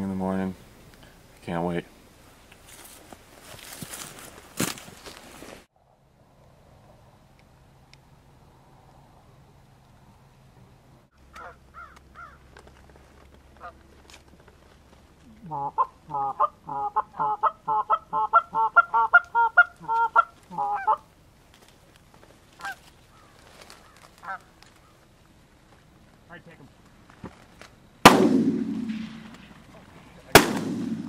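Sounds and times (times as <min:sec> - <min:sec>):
goose honking: 0:11.3 - 0:12.4, 0:15.4 - 0:21.0, 0:22.6 - 0:24.5.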